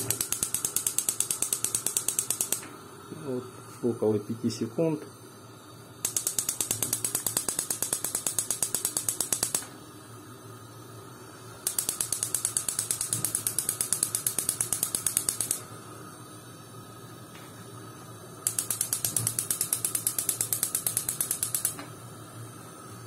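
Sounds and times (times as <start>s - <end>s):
gas stove igniter clicking: 0.0s - 2.8s, 6.0s - 9.8s, 11.6s - 15.7s, 18.4s - 22.0s.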